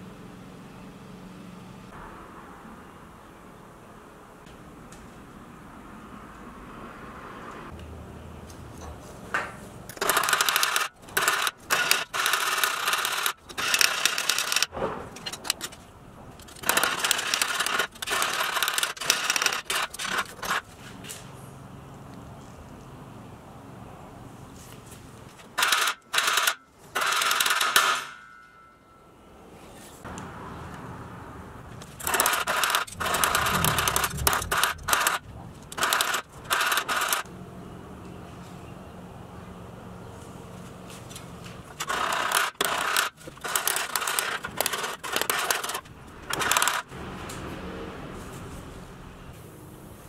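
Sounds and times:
hammer scraping and rattling metal: 0:08.8 - 0:21.2, 0:31.7 - 0:37.3, 0:41.0 - 0:47.4.

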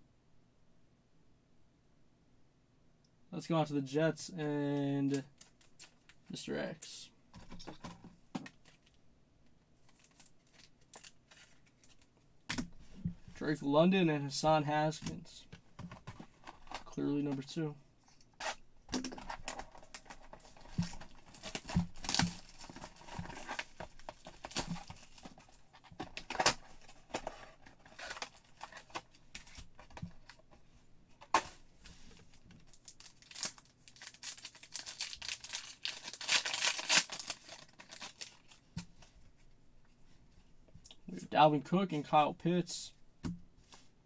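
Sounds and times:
card wrappers tearing and crinkling: 0:09.9 - 0:12.1, 0:18.4 - 0:30.4, 0:32.6 - 0:38.6.

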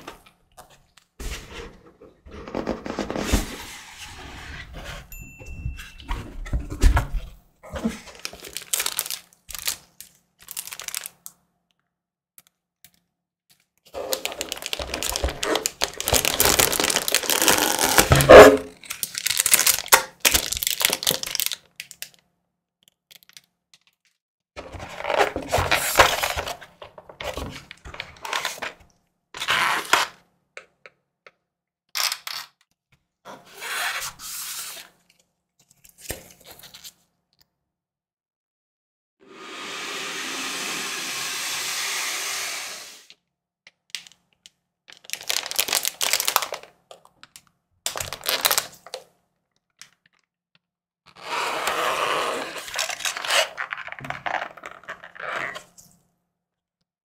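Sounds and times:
plastic sleeve crinkling: 0:07.9 - 0:11.3, 0:13.9 - 0:22.2, 0:44.9 - 0:49.0
paper and cardboard rustling: 0:13.9 - 0:21.5, 0:24.6 - 0:28.8.

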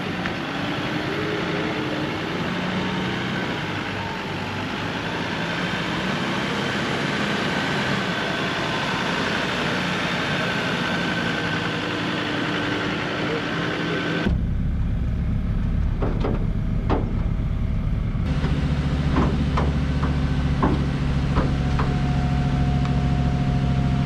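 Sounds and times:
vehicle engine driving on sand: 0:00.0 - 0:24.0.

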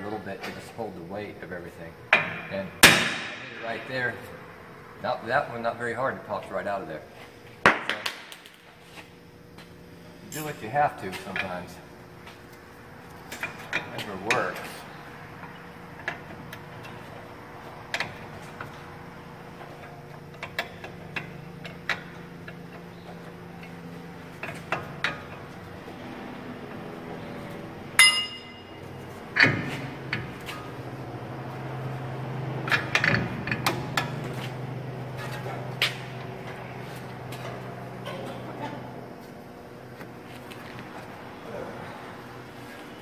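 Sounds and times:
steady low hum: 0:00.0 - 0:43.0
ringing metal clank: 0:28.0 - 0:28.8.

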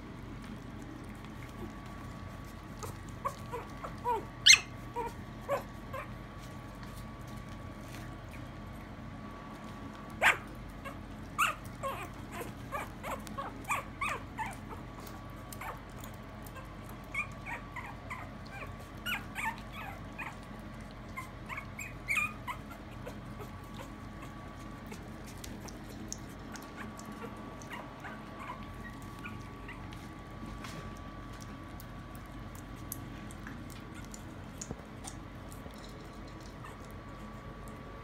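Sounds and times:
puppy whimpering and yipping: 0:02.8 - 0:06.2, 0:10.2 - 0:30.0, 0:36.5 - 0:37.4.

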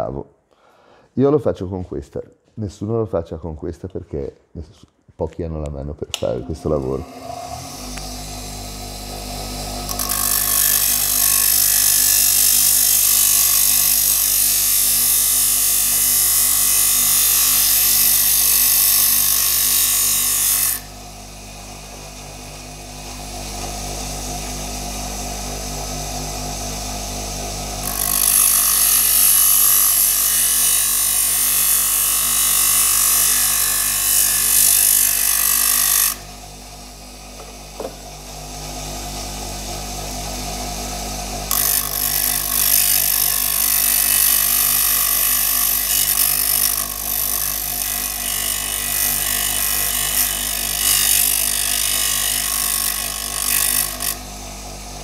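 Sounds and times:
grinder motor spinning freely: 0:06.4 - 0:36.4, 0:37.5 - 0:54.8
grinder wheel grinding screw: 0:06.8 - 0:20.9, 0:27.6 - 0:36.3, 0:41.4 - 0:54.2.

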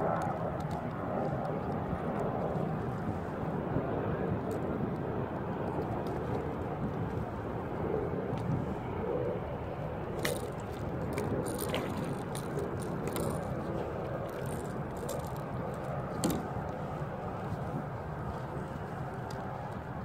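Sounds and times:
water noise: 0:00.0 - 0:20.0
wind: 0:00.0 - 0:20.0
fishing gear clicks and rattles: 0:00.1 - 0:02.8, 0:10.1 - 0:20.0.

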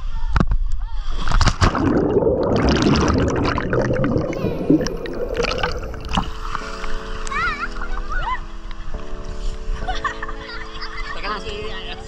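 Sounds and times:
churning water underwater: 0:01.3 - 0:08.0
water splashing: 0:01.3 - 0:08.1.

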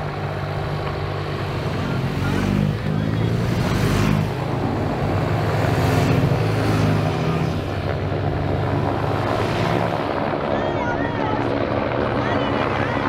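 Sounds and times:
motorcycles riding past: 0:00.0 - 0:10.6.

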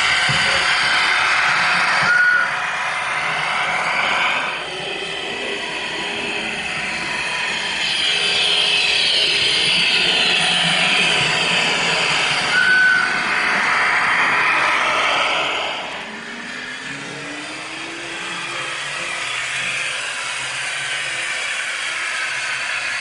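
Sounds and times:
model train rolling on track: 0:00.0 - 0:23.0
short high tones: 0:12.5 - 0:13.2.

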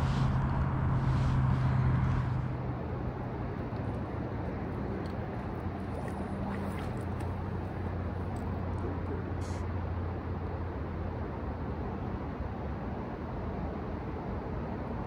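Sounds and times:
wind on microphone: 0:00.0 - 0:08.2
low hum: 0:00.0 - 0:10.0.

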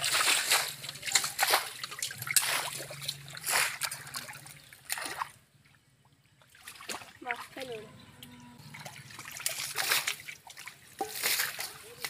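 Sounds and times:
hands splashing in shallow water: 0:00.0 - 0:05.4, 0:09.1 - 0:12.0.

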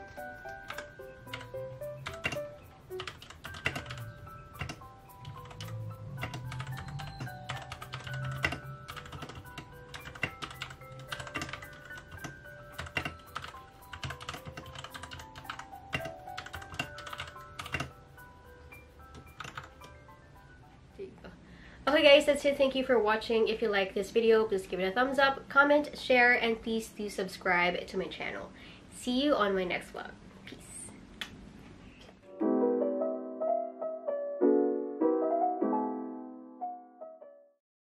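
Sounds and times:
soft background music: 0:00.0 - 0:26.9, 0:32.2 - 0:37.6
mechanical keyboard typing: 0:00.2 - 0:18.0, 0:19.1 - 0:20.0.

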